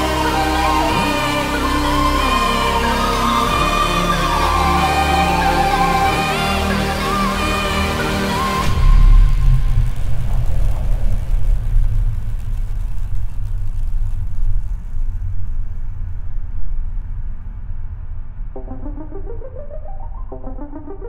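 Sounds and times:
music with rising pattern: 0:00.0 - 0:11.6, 0:17.1 - 0:21.0
low rumble with hiss: 0:08.3 - 0:19.7.

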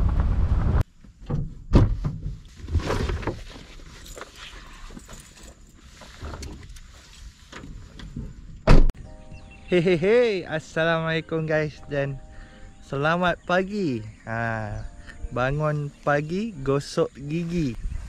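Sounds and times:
loud thump: 0:00.0 - 0:02.4, 0:08.7 - 0:08.9
fishing gear clattering and rustling: 0:02.1 - 0:08.5
wind buffeting microphone: 0:17.7 - 0:18.0.

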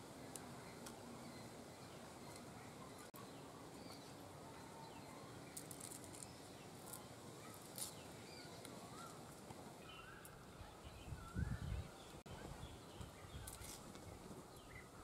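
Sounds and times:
faint bird chirps: 0:00.6 - 0:15.0
leaves snapping and rustling: 0:05.5 - 0:08.0, 0:13.4 - 0:14.1.

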